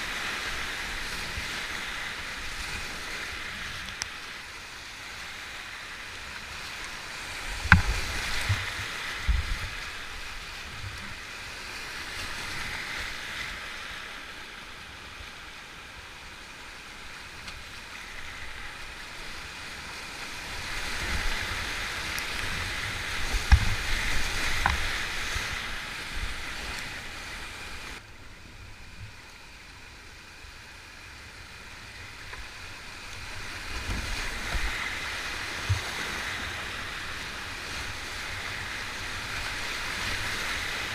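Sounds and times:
whitewater rushing: 0.0s - 28.3s, 29.5s - 40.9s
sharp knocks: 7.6s - 8.6s.

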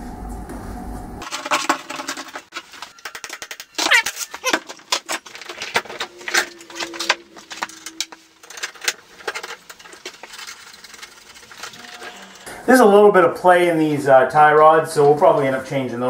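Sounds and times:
metal tools clanking: 1.2s - 12.5s.

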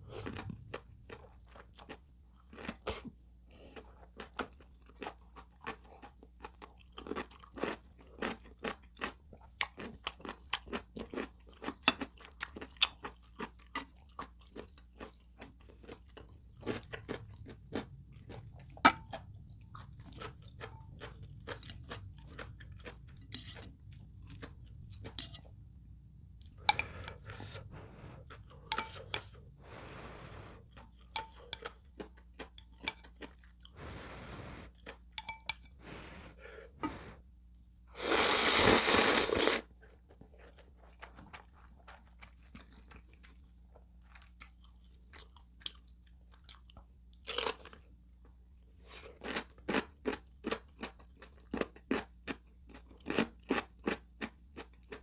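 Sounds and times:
loud slurp: 38.0s - 39.7s
wet chewing: 39.8s - 45.8s.

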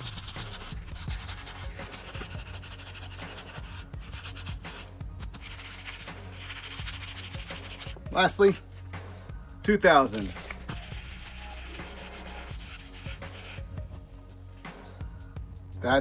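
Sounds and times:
sandpaper rasping on steel: 0.0s - 8.6s, 10.2s - 13.7s.

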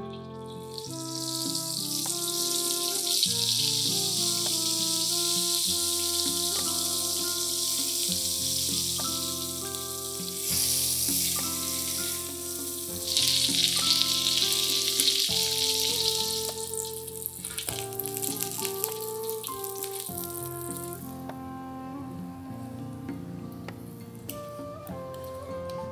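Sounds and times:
fish frying in hot oil: 0.0s - 21.1s
soft background music: 0.0s - 25.9s.

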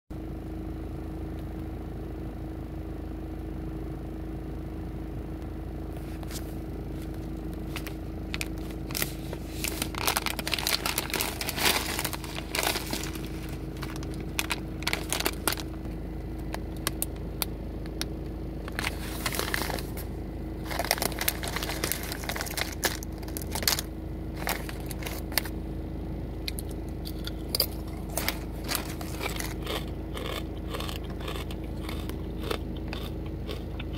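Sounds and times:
low hum: 0.2s - 33.9s
chip bag crinkling: 6.3s - 25.6s, 26.5s - 33.9s
hand rummaging among chips: 7.1s - 15.8s, 18.6s - 20.0s, 20.6s - 25.5s, 26.5s - 33.1s.

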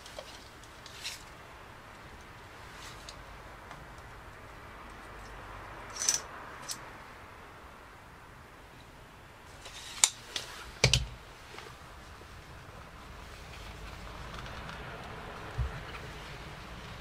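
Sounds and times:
tape measure clicks: 5.9s - 6.8s.

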